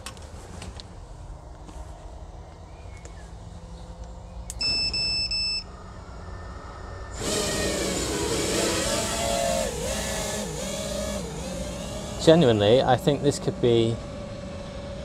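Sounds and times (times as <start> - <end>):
short electronic beeps: 4.6 - 5.7
quadcopter motors whirring: 6.1 - 15.0.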